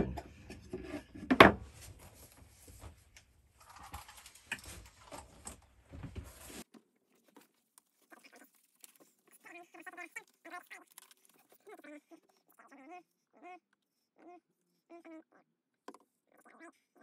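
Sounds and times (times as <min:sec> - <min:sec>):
knocks and rustles of handling: 0:00.0 - 0:09.3
disposable gloves crinkling: 0:02.0 - 0:11.7.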